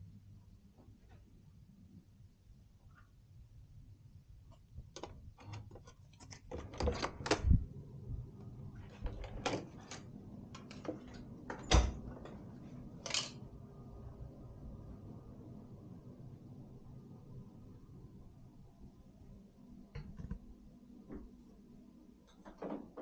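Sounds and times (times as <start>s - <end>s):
wooden door thudding shut: 11.6s - 12.0s.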